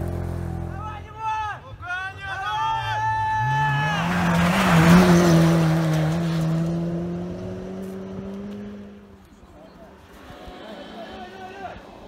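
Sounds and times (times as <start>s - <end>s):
rally car engine: 0.0s - 1.2s, 2.3s - 12.0s
rush of tyres and spray: 3.7s - 8.7s.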